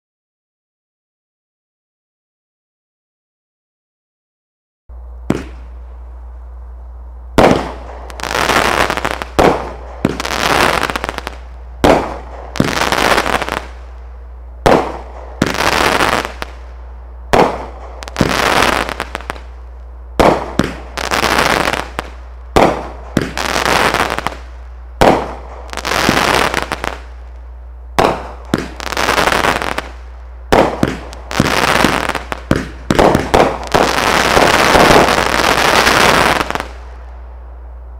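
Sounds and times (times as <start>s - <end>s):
steady low hum: 4.9s - 37.9s
firework bangs: 5.3s - 5.8s, 7.4s - 14.0s, 14.6s - 19.6s, 20.2s - 27.3s, 28.0s - 37.0s
firework hissing: 7.4s - 19.6s, 20.2s - 27.3s, 28.0s - 37.0s.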